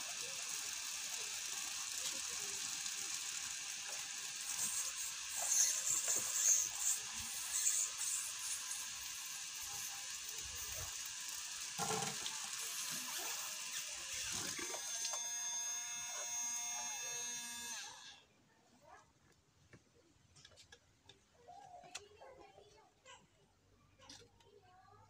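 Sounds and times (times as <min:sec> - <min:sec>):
water pump motor whirring: 0:00.0 - 0:18.2.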